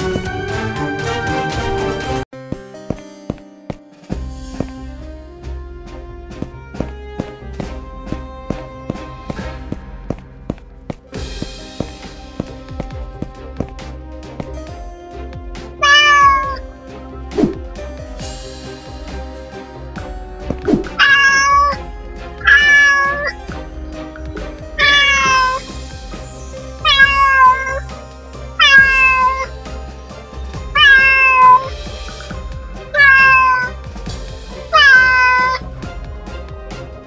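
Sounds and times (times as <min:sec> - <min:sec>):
background music: 0:00.0 - 0:37.0
cat meowing: 0:15.8 - 0:16.6, 0:21.0 - 0:21.8, 0:22.4 - 0:23.4, 0:24.8 - 0:25.6, 0:26.8 - 0:27.8, 0:28.6 - 0:29.5, 0:30.8 - 0:31.7, 0:32.9 - 0:33.8, 0:34.7 - 0:35.6.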